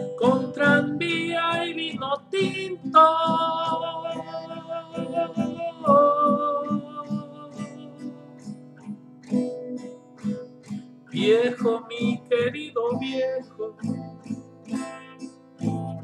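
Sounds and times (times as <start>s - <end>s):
man singing a ballad: 0.0s - 8.6s, 11.1s - 14.1s
strummed acoustic guitar: 0.0s - 16.0s.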